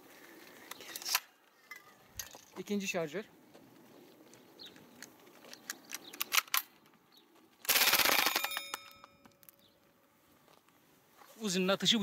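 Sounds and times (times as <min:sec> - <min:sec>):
airgun full-auto burst: 0:07.6 - 0:08.6.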